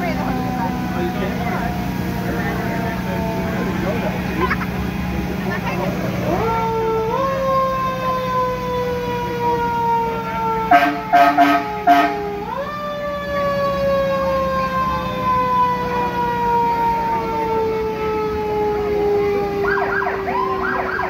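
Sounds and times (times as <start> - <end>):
fire truck siren: 0.0 - 21.0
low engine hum: 0.0 - 21.0
short horn blasts: 10.7 - 12.2.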